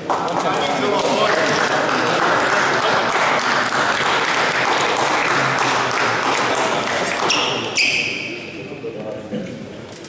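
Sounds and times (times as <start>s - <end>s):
spectators applauding: 0.0s - 8.0s.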